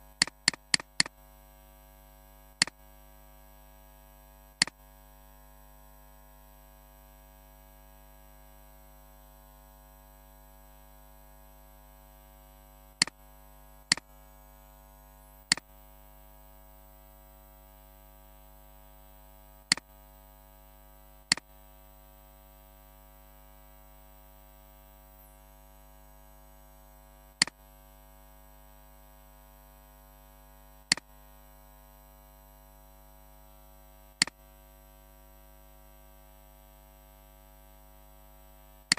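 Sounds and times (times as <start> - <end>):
electrical mains hum: 0.0 - 38.9
computer mouse clicks: 0.2 - 1.1.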